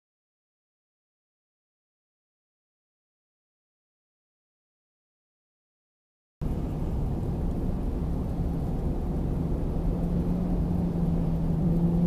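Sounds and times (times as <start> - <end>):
car road and engine noise: 6.4 - 12.0.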